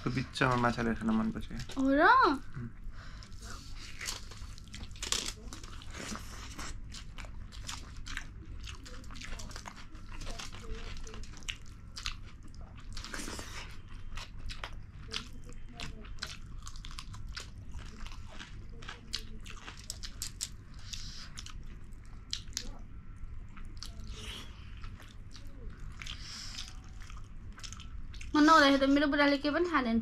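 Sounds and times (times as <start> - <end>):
steady low hum: 0.0 - 30.0
wet chewing and smacking: 3.2 - 28.8.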